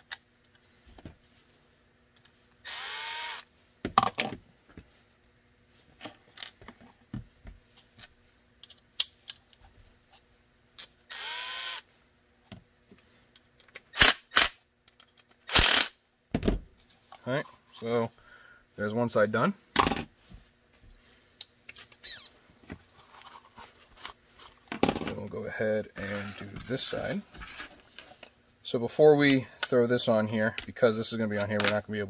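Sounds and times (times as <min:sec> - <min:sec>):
cordless drill running: 0:02.6 - 0:03.5, 0:11.1 - 0:11.8.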